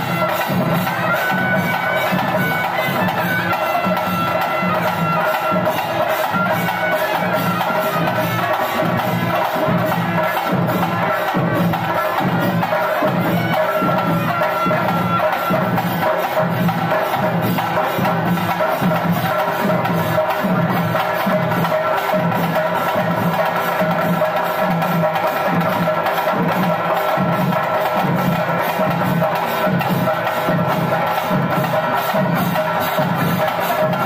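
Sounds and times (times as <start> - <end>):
drums and percussion: 0.0 - 34.0
wind instrument melody: 0.0 - 34.0.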